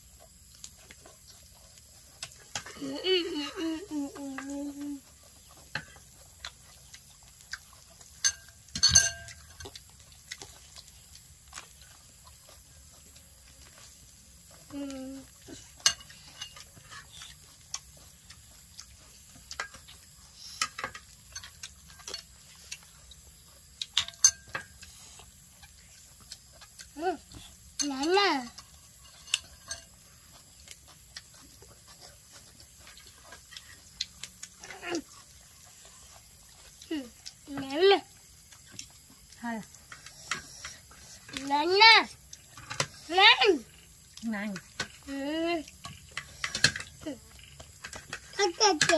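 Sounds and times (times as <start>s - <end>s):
cutlery tapping on plates: 8.2s - 9.4s
cutlery clicking on plates: 8.2s - 9.7s, 15.8s - 16.7s, 23.9s - 24.8s, 29.1s - 30.0s, 45.8s - 46.9s.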